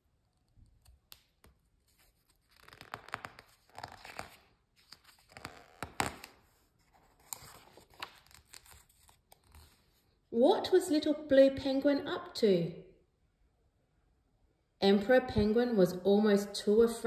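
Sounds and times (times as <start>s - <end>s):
book pages turning: 0.0s - 10.2s.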